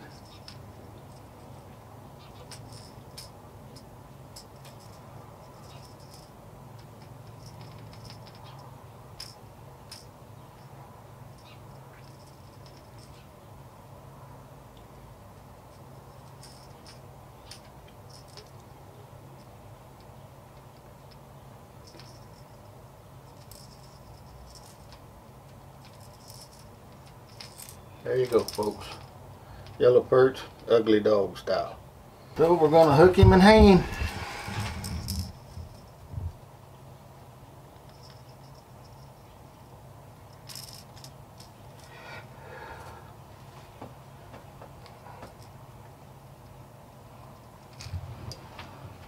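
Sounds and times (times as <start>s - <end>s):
low steady hum: 0.0s - 49.0s
light clicks and rattling: 23.3s - 29.8s
steady low hum: 31.8s - 49.0s.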